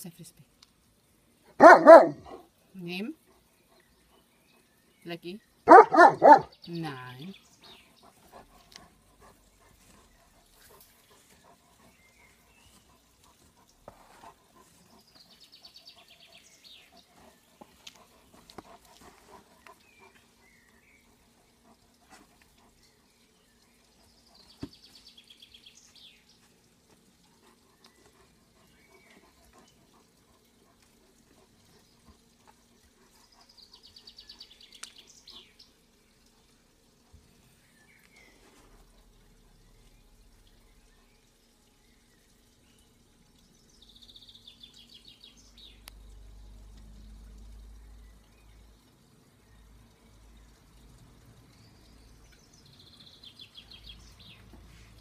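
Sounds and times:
birds chirping: 1.6 - 21.8.

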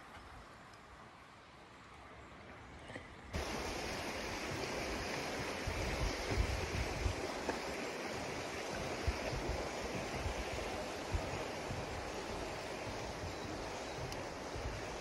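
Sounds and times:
steady rushing noise: 3.4 - 15.0
wind buffeting microphone: 3.4 - 15.0.

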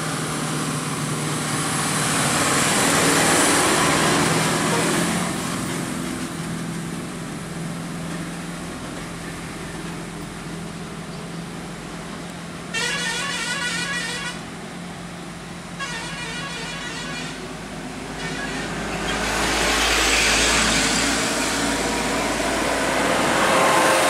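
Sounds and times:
diesel engine hum: 0.0 - 24.0
warbling vehicle horn: 12.7 - 14.4, 15.8 - 17.4.

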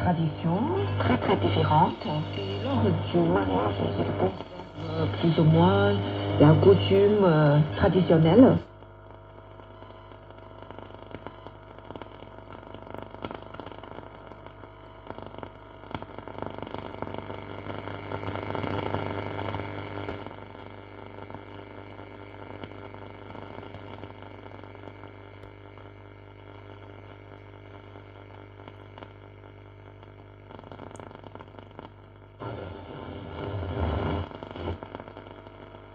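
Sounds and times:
low hum: 0.0 - 17.0
radio static and hiss: 0.0 - 35.9.

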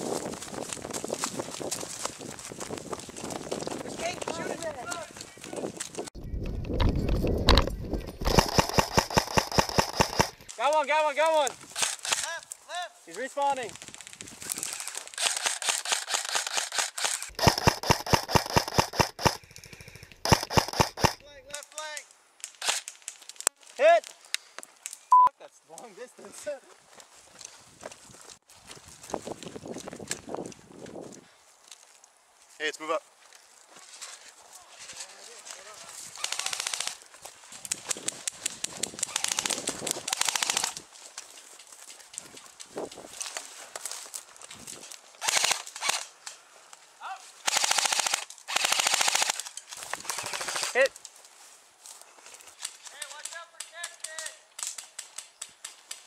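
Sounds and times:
airsoft rifle firing full auto: 8.2 - 10.4, 15.2 - 21.2, 36.2 - 37.0, 39.1 - 40.8, 45.2 - 46.0, 47.4 - 49.4, 50.0 - 50.8.

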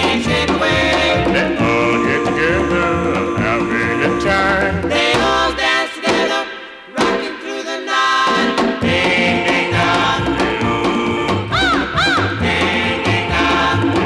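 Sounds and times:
rock and roll band playing: 0.0 - 14.0
vocal group singing doo-wop: 0.0 - 14.0.

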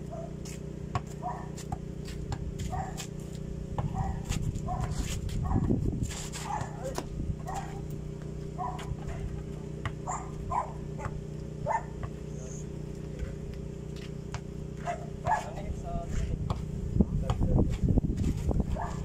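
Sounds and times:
steady low hum: 0.0 - 19.0
dog barking: 0.1 - 0.4, 1.2 - 1.6, 2.7 - 3.0, 3.9 - 5.7, 6.4 - 7.8, 8.6 - 9.3, 10.0 - 12.0, 14.8 - 15.6, 18.7 - 19.0.

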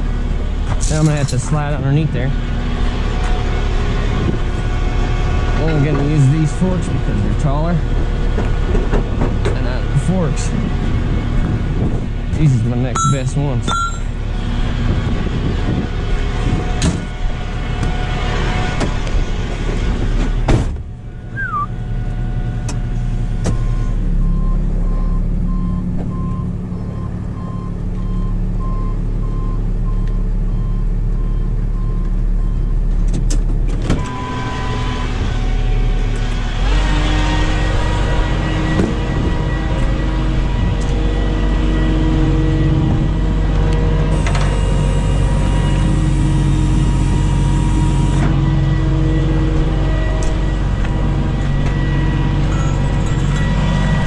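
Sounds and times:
tow truck engine running: 0.0 - 54.0
short regular beeps: 13.0 - 14.1.

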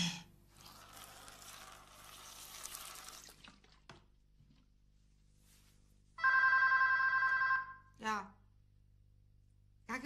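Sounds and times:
liquid pouring into plastic basin: 0.6 - 4.7
telephone ringing: 6.2 - 7.9.

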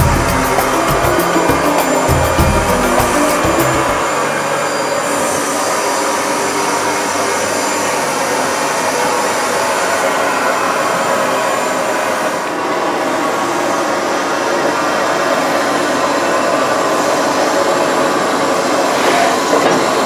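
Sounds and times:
steam hissing from locomotive: 4.0 - 20.0.

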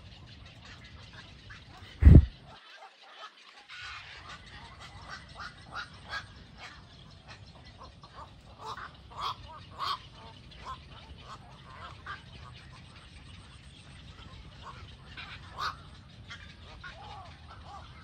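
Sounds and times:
waterbirds calling: 0.0 - 18.0
steady low rumble: 2.0 - 2.4.

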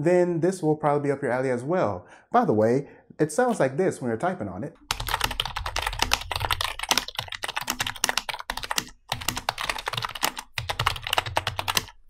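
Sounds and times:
keyboard typing: 4.8 - 12.0.

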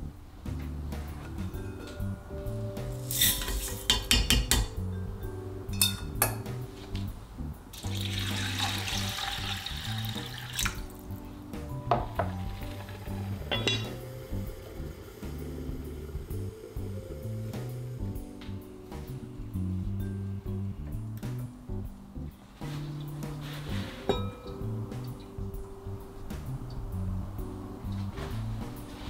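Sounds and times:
soft background music: 0.0 - 29.0
metal strainer clinking on bowl: 3.0 - 4.8, 5.7 - 6.4, 13.5 - 14.0
water pouring into pot: 7.8 - 11.0, 12.2 - 16.7
iron lid clacking: 13.5 - 14.0.

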